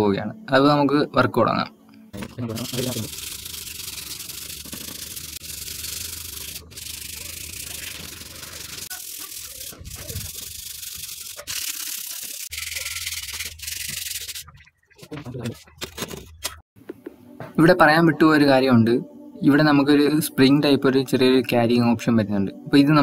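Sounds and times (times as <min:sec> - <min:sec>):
sandpaper scratching on metal: 0:02.4 - 0:14.5.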